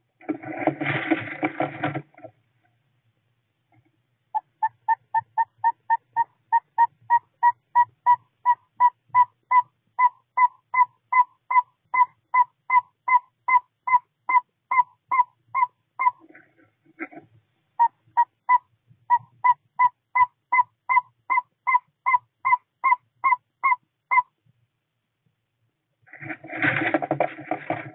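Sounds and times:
owl tooting call: 4.3 - 16.3, 17.8 - 24.4.

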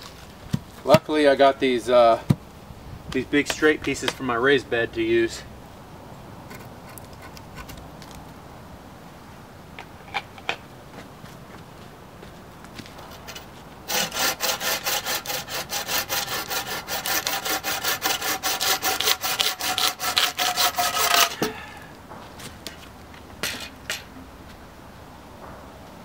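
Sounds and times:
hand saw cutting wood: 13.3 - 21.6.

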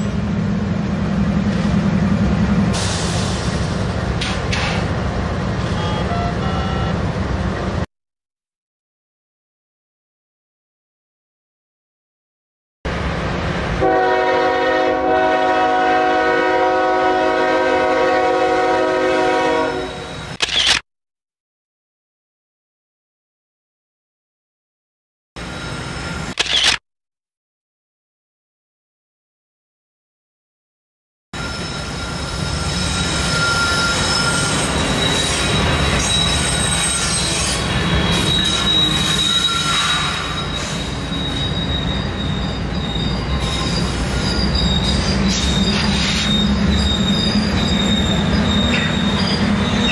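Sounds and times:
train rumble: 0.0 - 7.9, 31.4 - 49.9
locomotive air horn blast: 5.6 - 7.0, 13.8 - 20.2.

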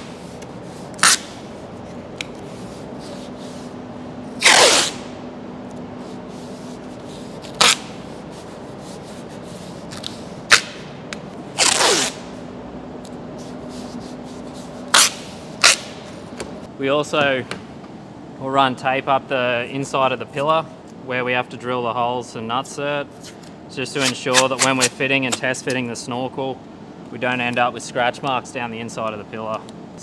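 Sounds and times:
masking tape ripping off roll: 1.0 - 1.4, 4.4 - 5.1, 7.4 - 8.0, 11.6 - 12.2, 14.9 - 16.0, 24.0 - 25.0.

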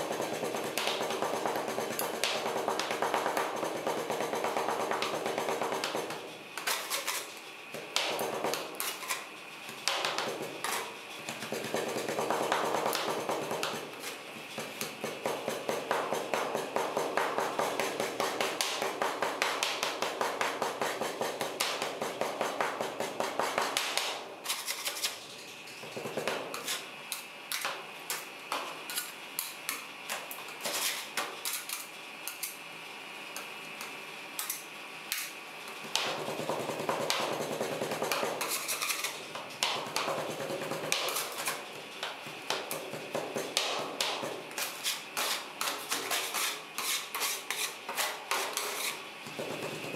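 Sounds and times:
metal spatulas chopping and scraping: 0.0 - 25.2, 36.0 - 49.9.

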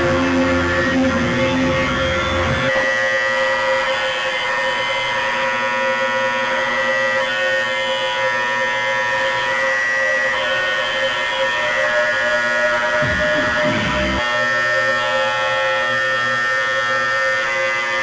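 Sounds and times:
deep bass: 0.0 - 2.7, 13.0 - 14.2
electronic drone: 0.0 - 18.0.

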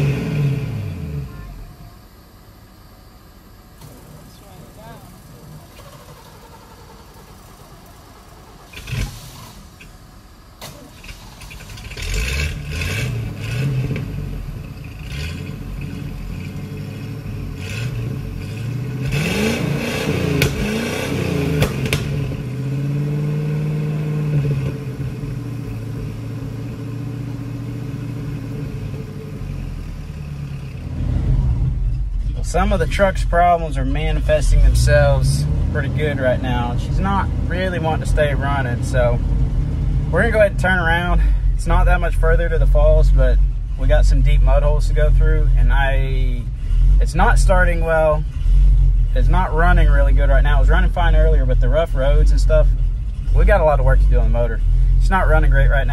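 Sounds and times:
truck engine starting and revving: 0.0 - 2.8, 3.7 - 55.9.

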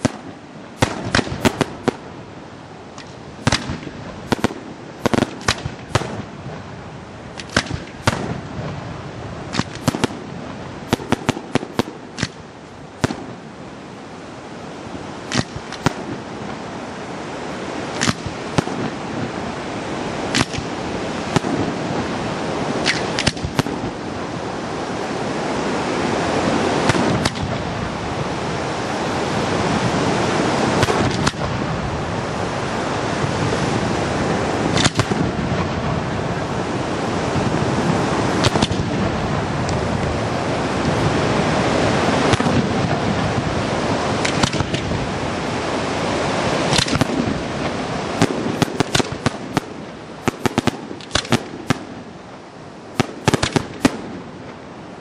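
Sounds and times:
firework bangs: 0.0 - 2.2, 2.9 - 6.7, 7.3 - 13.6, 15.3 - 16.6, 17.9 - 19.4, 20.2 - 22.0, 22.7 - 24.0, 26.7 - 27.8, 30.7 - 31.7, 34.6 - 36.0, 38.3 - 39.1, 42.2 - 43.5, 44.2 - 45.0, 46.6 - 52.1, 52.9 - 54.6
dense rushing noise: 0.0 - 55.0.

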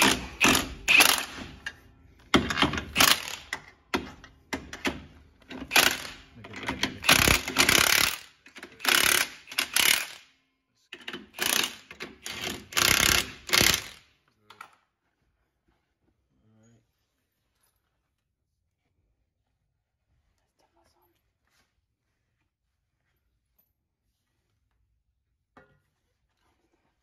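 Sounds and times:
ratchet clicking: 0.0 - 1.8, 2.5 - 3.7, 4.6 - 10.2, 11.0 - 14.0.

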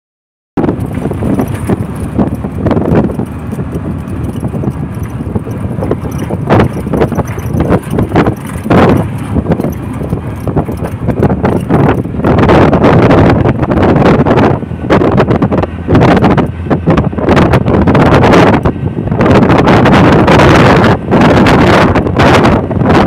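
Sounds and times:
vehicle road rumble: 0.6 - 23.0
vehicle body knocks and rattles: 0.7 - 12.2.

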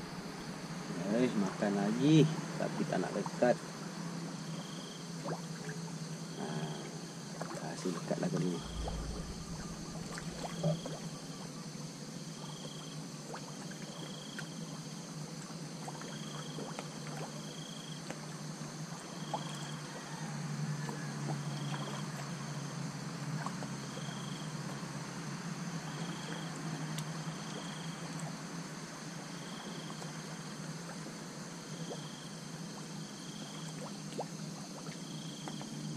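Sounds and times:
steady low hum: 0.0 - 19.2
water lapping at boat hull: 5.2 - 11.6, 31.8 - 35.9.

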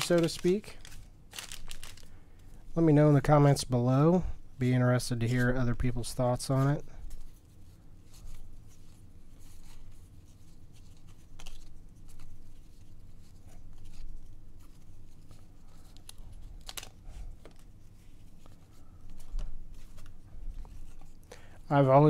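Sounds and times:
cards being flipped through: 0.0 - 2.1, 10.8 - 12.8, 13.6 - 21.2.

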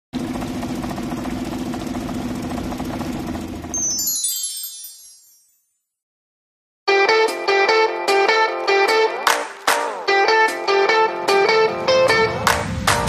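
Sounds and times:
outboard motor running: 0.2 - 3.8
sparkling chime: 3.8 - 5.9.

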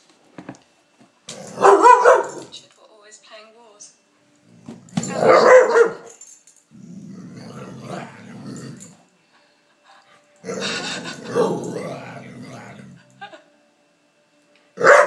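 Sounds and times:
dog growling: 6.7 - 9.0, 10.4 - 13.3.

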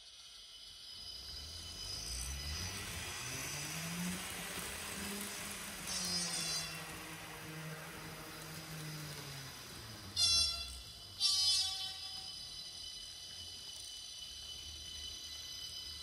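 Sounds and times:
model train running sound: 0.0 - 16.0
high-pitched train horn blasts: 5.2 - 13.1.

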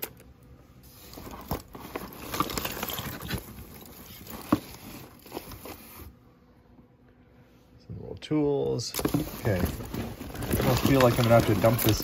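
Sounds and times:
rummaging through trinkets: 0.0 - 6.2, 8.9 - 12.0.

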